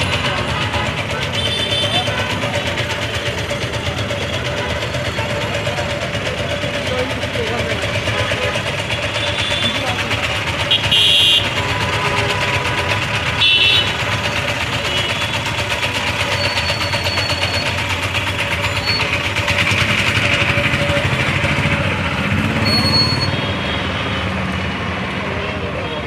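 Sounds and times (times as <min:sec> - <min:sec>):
car engines running: 0:00.0 - 0:26.0
vehicle horn tooting: 0:01.2 - 0:02.6, 0:09.0 - 0:10.0, 0:10.6 - 0:14.2, 0:14.8 - 0:15.4, 0:22.5 - 0:24.3.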